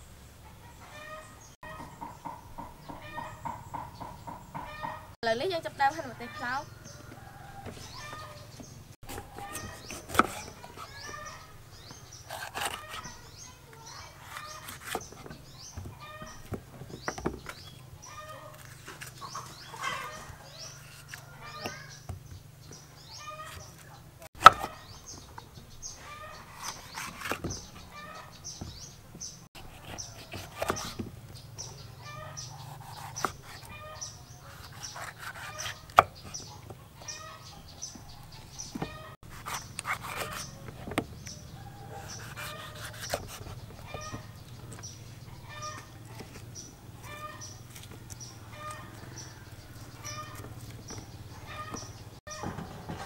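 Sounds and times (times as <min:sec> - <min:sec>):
chickens clucking: 0:00.4 - 0:05.2, 0:06.0 - 0:22.1, 0:22.7 - 0:53.0
knife cutting peppers: 0:09.0 - 0:11.4, 0:12.0 - 0:13.3, 0:29.6 - 0:31.1, 0:32.4 - 0:33.8, 0:34.4 - 0:36.5, 0:39.2 - 0:45.0.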